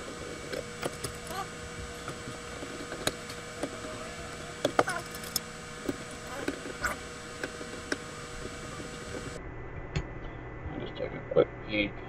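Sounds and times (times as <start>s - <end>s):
faint steady hum: 0.0s - 12.0s
screwdriver clicking on metal parts: 0.5s - 2.2s, 4.6s - 6.6s.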